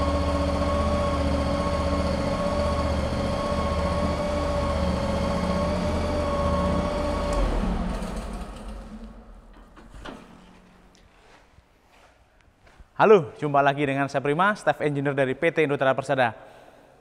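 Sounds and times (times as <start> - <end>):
loader engine running: 0.0 - 10.9.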